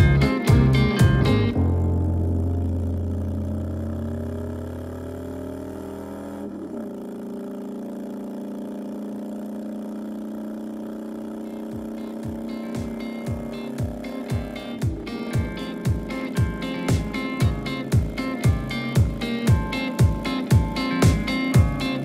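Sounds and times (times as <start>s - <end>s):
deep kick drums: 0.0s - 2.4s, 11.7s - 22.0s
motorcycle engine running: 0.0s - 22.0s.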